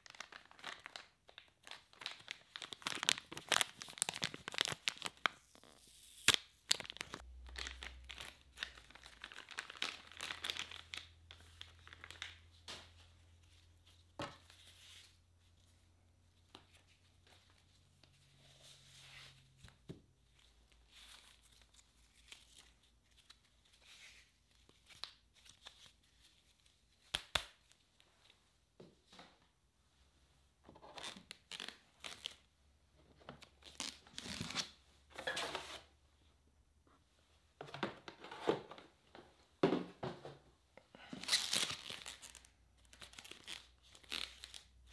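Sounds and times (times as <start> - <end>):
plastic wrapping crinkling: 0.0 - 12.7.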